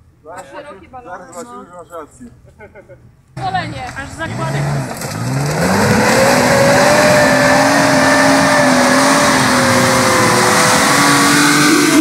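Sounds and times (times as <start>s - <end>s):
engine at high revs: 3.4s - 12.0s.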